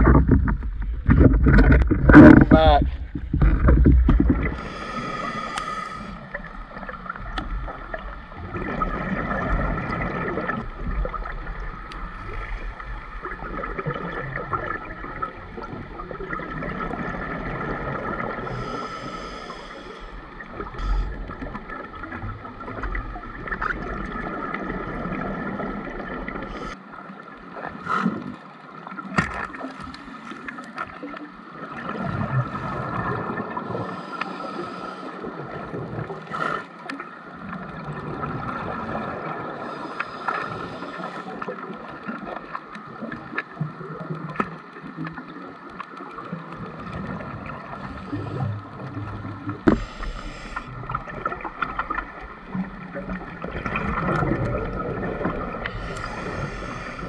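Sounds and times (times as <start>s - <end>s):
exhaled bubbles gurgling: 0.0s - 57.0s
steady underwater hum: 0.0s - 57.0s
regulator inhalation hiss: 4.6s - 6.2s, 18.5s - 21.2s, 33.8s - 35.2s, 39.7s - 41.4s, 49.7s - 50.7s, 55.7s - 57.0s.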